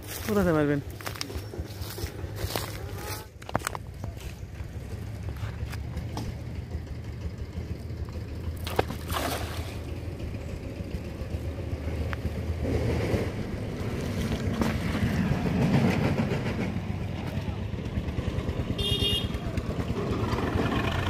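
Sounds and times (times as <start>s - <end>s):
water sloshing and splashing: 8.4s - 10.3s
cast net splashing into water: 8.6s - 10.0s.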